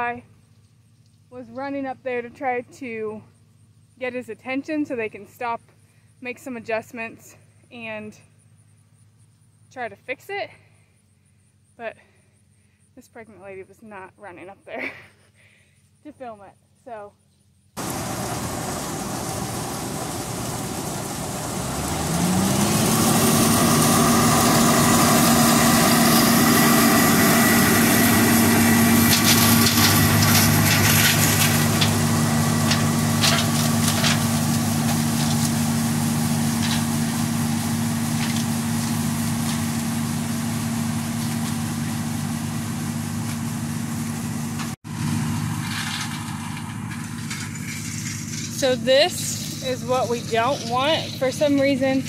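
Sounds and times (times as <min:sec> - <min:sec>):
diesel engine running: 0:17.7 - 0:52.0.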